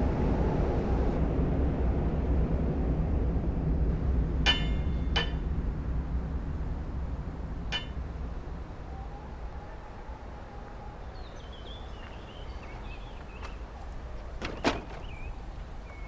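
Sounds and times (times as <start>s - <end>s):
low steady rumble: 0.0s - 16.0s
light ringing clinks: 4.5s - 5.5s, 7.7s - 8.0s.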